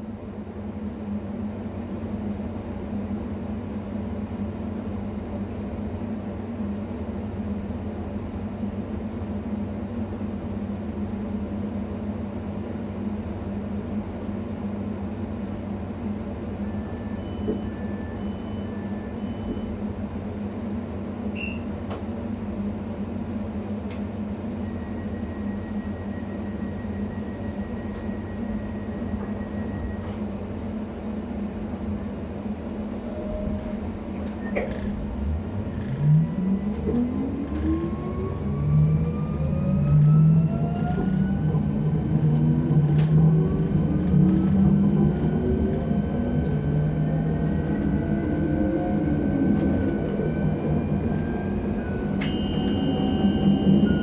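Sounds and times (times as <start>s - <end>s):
long steady beep: 16.6s - 19.8s, 24.6s - 30.1s, 50.8s - 54.0s
electric train humming: 21.9s - 54.0s.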